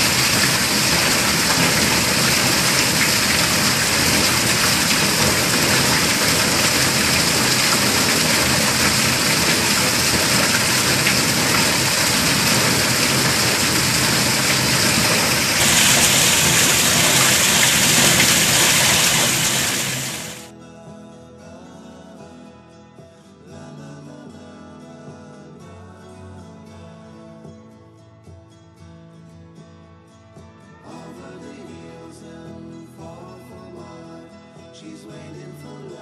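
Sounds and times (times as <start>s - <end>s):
heavy rain hissing: 0.0s - 20.5s
water pouring off roof: 0.0s - 20.5s.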